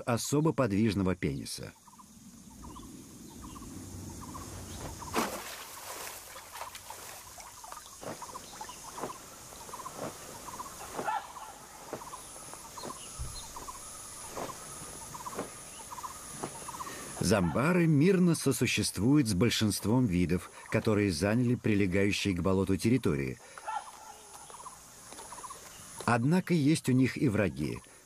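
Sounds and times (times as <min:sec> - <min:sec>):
animal chirps and trills: 0:07.4 - 0:17.7.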